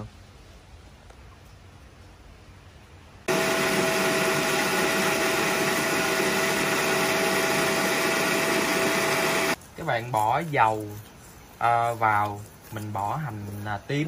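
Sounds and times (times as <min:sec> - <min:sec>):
blender motor running: 0:03.3 - 0:09.6.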